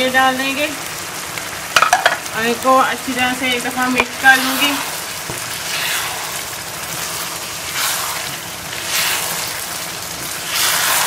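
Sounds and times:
liquid bubbling and sizzling in pan: 0.0 - 11.0
wooden spoon stirring rice: 4.0 - 11.0.

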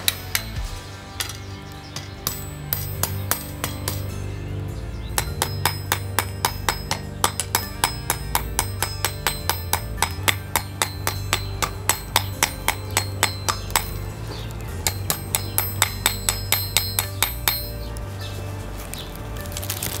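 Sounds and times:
hammer striking hot steel on anvil: 0.0 - 4.3, 5.1 - 18.0.

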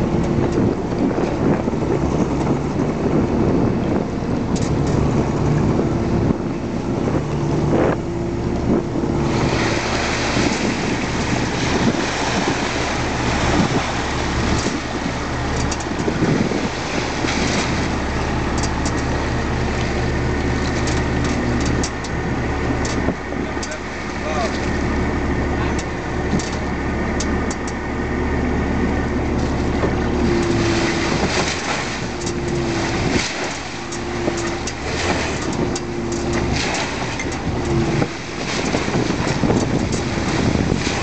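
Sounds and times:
boat engine humming: 0.0 - 41.0
water splashing and pouring: 9.2 - 21.5, 29.6 - 41.0.

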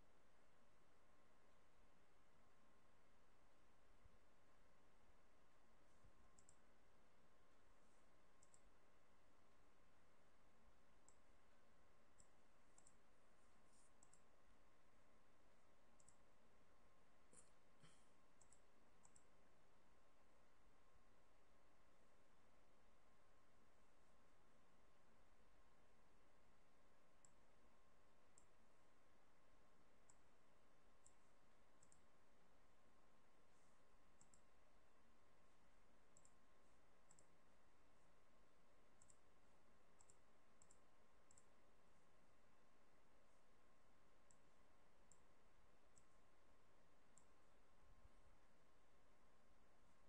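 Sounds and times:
low steady hiss: 0.0 - 50.0
computer mouse clicks: 5.8 - 6.9, 8.0 - 8.9, 10.9 - 11.4, 12.0 - 14.4, 15.9 - 16.4, 17.2 - 19.4, 27.2 - 27.6, 28.2 - 28.6, 30.0 - 32.2, 33.4 - 38.2, 38.9 - 42.2, 44.1 - 46.3, 47.0 - 47.8.

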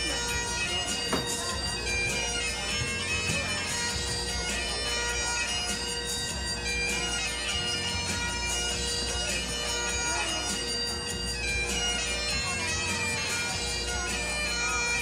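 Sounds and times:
bagpipe chanter melody: 0.0 - 15.0
bagpipe drones: 0.0 - 15.0.

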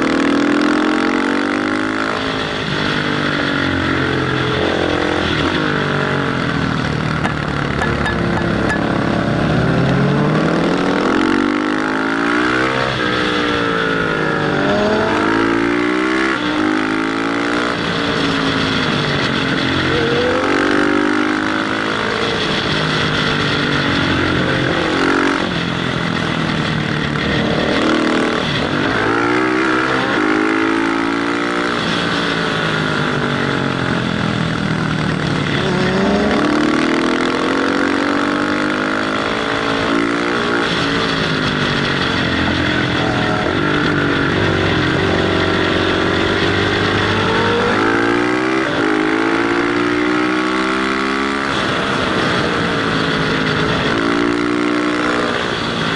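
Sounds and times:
motorcycle engine revving: 0.0 - 55.9.

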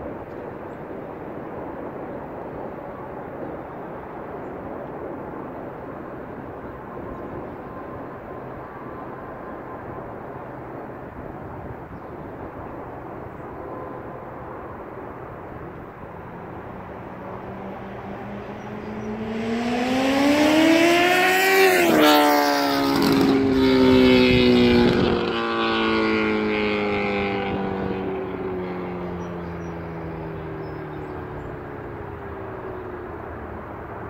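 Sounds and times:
motorcycle passing at speed: 15.5 - 34.0.

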